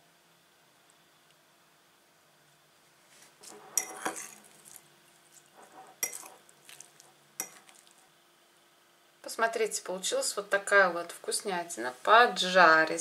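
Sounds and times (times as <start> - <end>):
ceramic plate clinking and rubbing: 3.4 - 4.8, 5.4 - 7.9.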